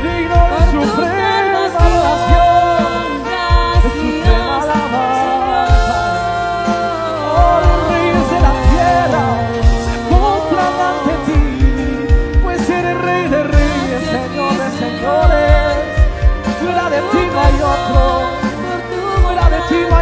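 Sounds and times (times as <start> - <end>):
worship band music: 0.0 - 20.0
people singing long notes: 0.5 - 20.0.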